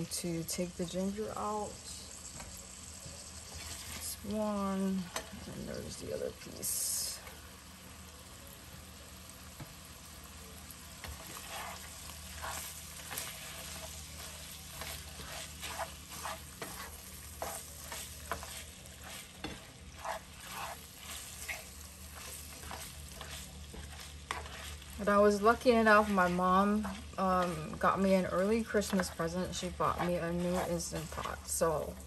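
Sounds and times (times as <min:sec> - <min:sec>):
meat frying in a pan: 0:00.0 - 0:32.0
spatula scraping a pan: 0:02.2 - 0:06.0, 0:11.0 - 0:32.0.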